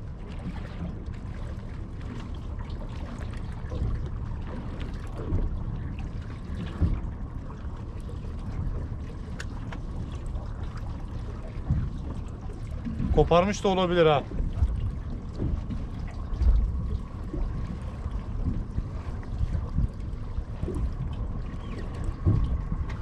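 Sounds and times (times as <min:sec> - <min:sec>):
low steady rumble: 0:00.0 - 0:23.0
water lapping against boat hull: 0:00.0 - 0:23.0.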